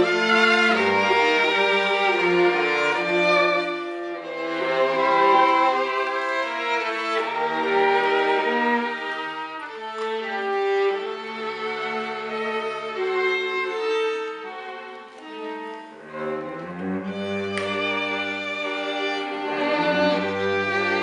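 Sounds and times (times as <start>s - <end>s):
violin playing legato melody: 0.0s - 21.0s.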